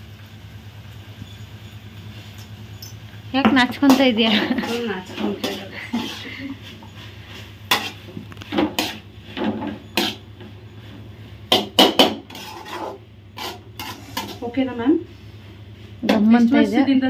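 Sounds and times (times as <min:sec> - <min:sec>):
ladle scraping a metal pan: 0:03.8 - 0:10.8, 0:11.5 - 0:14.7.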